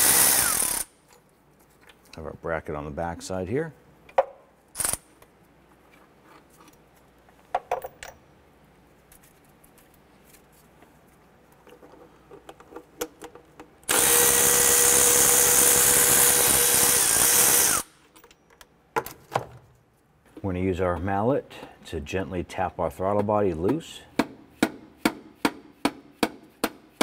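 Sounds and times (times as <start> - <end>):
cordless electric ratchet running: 0.0 - 0.9, 13.9 - 17.9.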